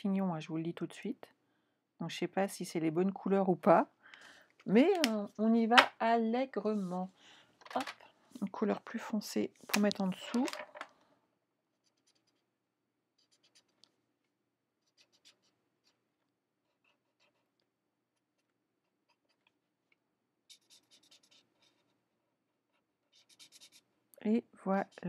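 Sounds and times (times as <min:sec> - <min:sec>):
marker scratching on cardstock: 0:11.8 - 0:12.5, 0:13.2 - 0:13.8, 0:14.8 - 0:16.0, 0:20.5 - 0:21.9, 0:23.0 - 0:23.9.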